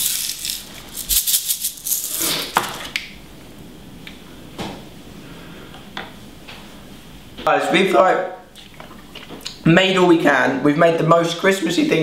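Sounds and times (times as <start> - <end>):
sprinkles rattling in a tub: 0.0 - 2.4.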